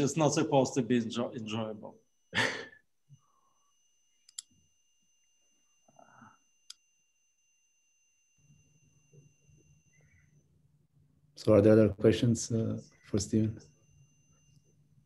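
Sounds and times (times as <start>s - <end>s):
sharp clicks: 4.2s - 4.5s.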